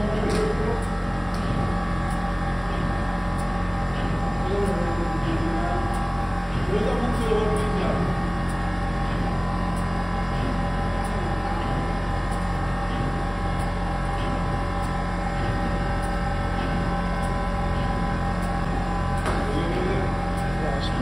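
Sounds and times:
ice cream machine humming: 0:00.0 - 0:21.0.

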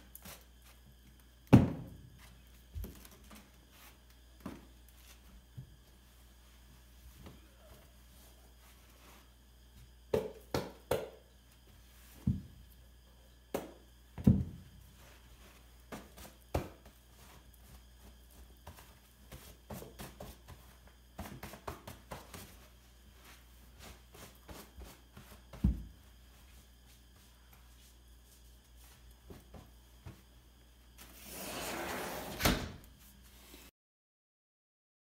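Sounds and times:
boots thumping on doormat: 0:14.2 - 0:14.7, 0:25.2 - 0:26.0.

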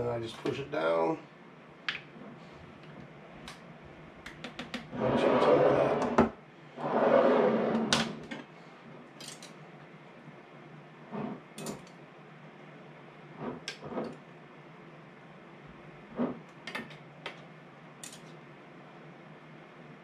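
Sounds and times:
glass jars scraping: 0:04.9 - 0:06.2.

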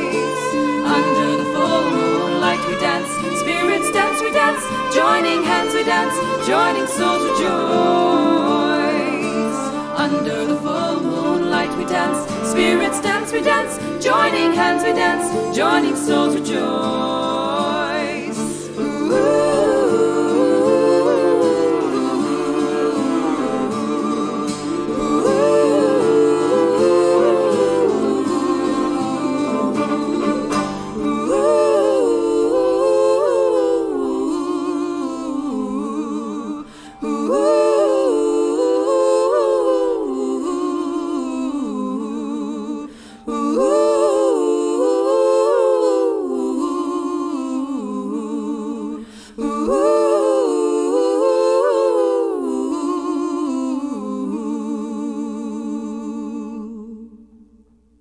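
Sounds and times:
person humming a melody: 0:00.0 - 0:36.4.

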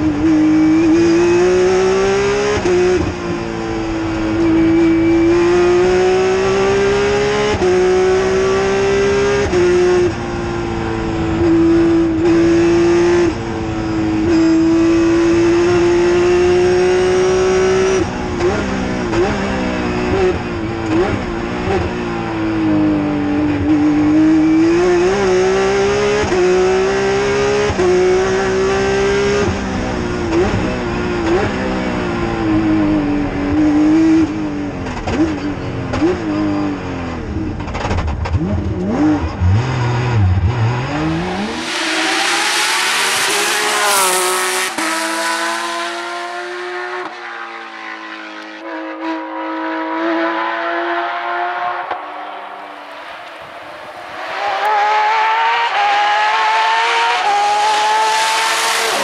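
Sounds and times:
rally car engine revving through gears: 0:00.0 - 0:53.4, 0:54.2 - 0:59.0
rushing noise: 0:40.5 - 0:46.3.

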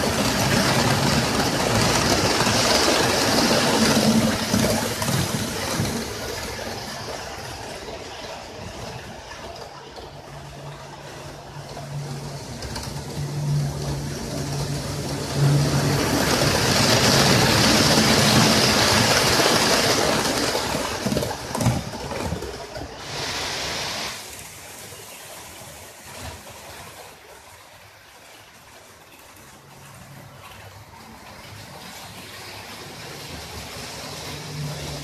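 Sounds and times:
model train motor hum: 0:00.0 - 0:24.4
wheels clicking over rail joints: 0:00.0 - 0:25.2, 0:25.9 - 0:35.0
model train wheels rushing on rail: 0:00.0 - 0:35.0.

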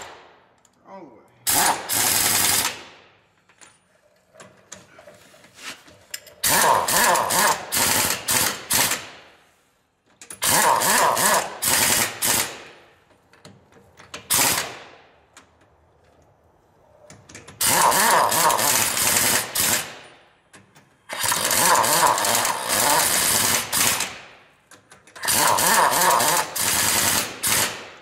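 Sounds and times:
pneumatic impact wrench hammering: 0:01.4 - 0:03.0, 0:06.2 - 0:09.3, 0:10.2 - 0:15.0, 0:17.1 - 0:28.0.

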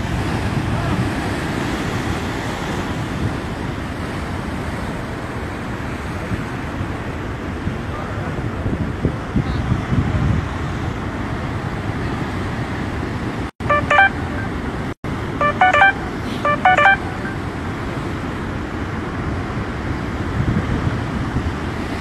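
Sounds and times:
quick electronic beeping: 0:13.6 - 0:14.4, 0:15.4 - 0:17.4.

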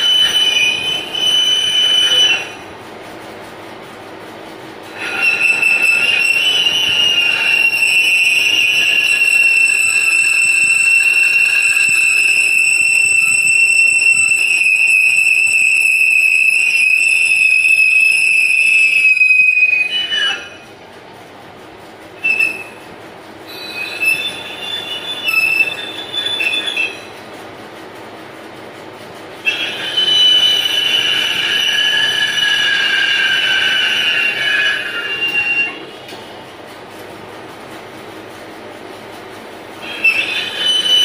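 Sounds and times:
lathe tool screeching on metal: 0:00.0 - 0:02.8, 0:04.8 - 0:20.8, 0:22.2 - 0:27.2, 0:29.4 - 0:36.2, 0:39.8 - 0:41.0.

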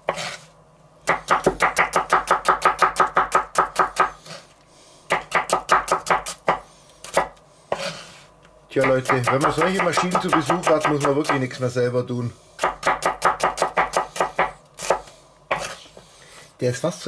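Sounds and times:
knife slicing on cutting board: 0:00.1 - 0:00.5.

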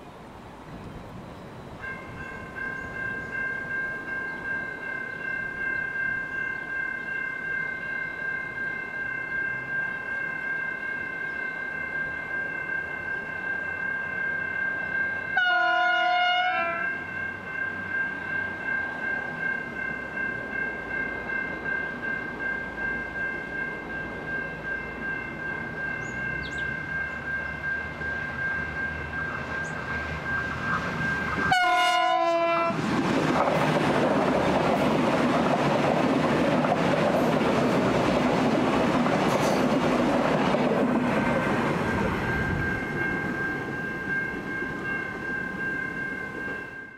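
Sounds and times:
diesel train passing: 0:00.0 - 0:46.9
train horn: 0:15.3 - 0:17.1, 0:30.7 - 0:32.8.

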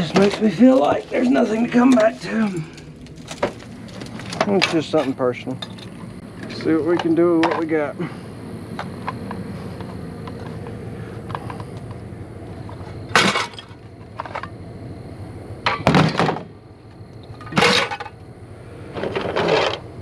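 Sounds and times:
scrap metal clattering into truck bed: 0:13.1 - 0:14.4, 0:15.7 - 0:16.4, 0:17.5 - 0:18.2, 0:19.0 - 0:19.8.

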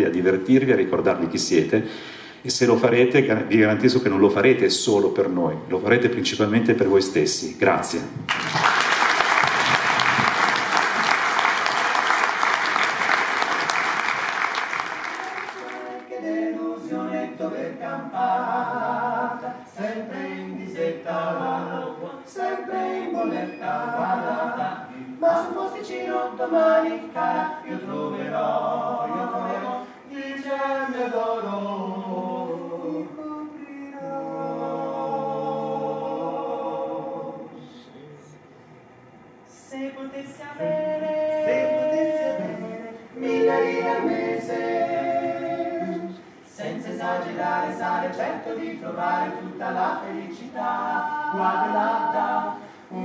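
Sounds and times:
audience applauding: 0:08.3 - 0:16.1
male vocal trio singing in harmony: 0:15.4 - 0:38.5, 0:39.5 - 0:53.0.

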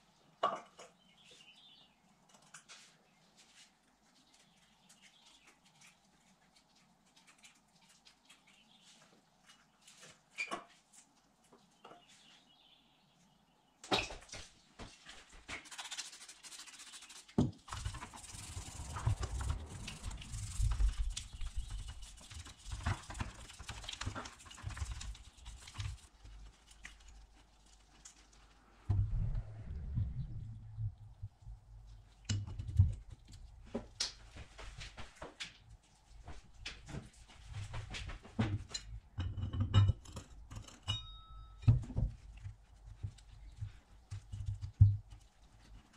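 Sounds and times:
scrubbing: 0:14.4 - 0:28.8.

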